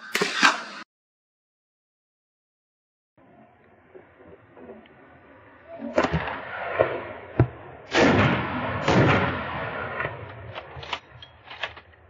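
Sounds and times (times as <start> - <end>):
rifle shots echoing: 5.9 - 11.2.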